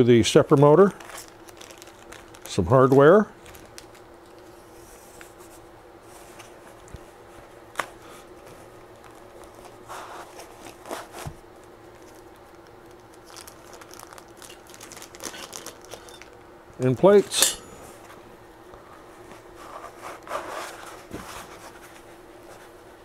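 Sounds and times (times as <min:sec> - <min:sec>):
faint steady hum: 0:00.0 - 0:23.0
plastic bags crinkling: 0:00.7 - 0:04.5, 0:11.9 - 0:16.4.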